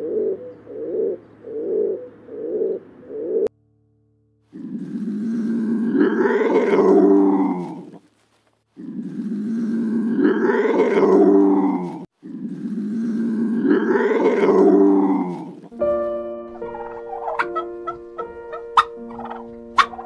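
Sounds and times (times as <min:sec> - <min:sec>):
wild cat growling yowl: 0:04.5 - 0:08.0, 0:08.8 - 0:15.7.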